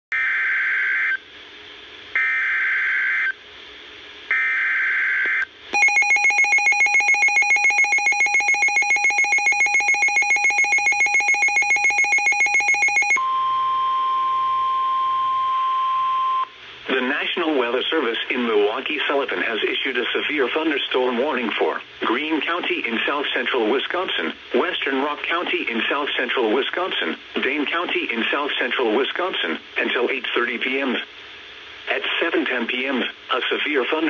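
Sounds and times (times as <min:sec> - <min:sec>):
rapid pulsing beeping alarm: 0:05.8 - 0:13.7
steady warning alert tone: 0:05.8 - 0:14.1.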